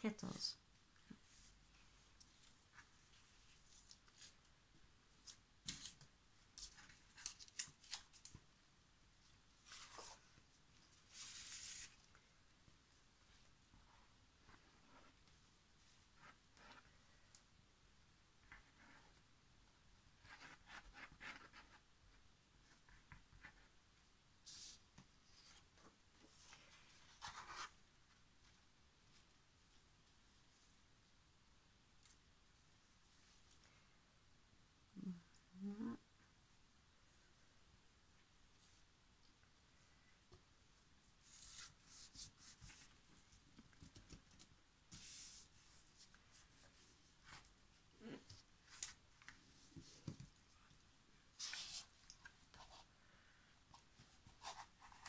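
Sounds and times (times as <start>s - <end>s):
paper rustle: 5.2s - 8.4s, 11.0s - 12.1s
hands rubbing paper: 11.0s - 12.0s.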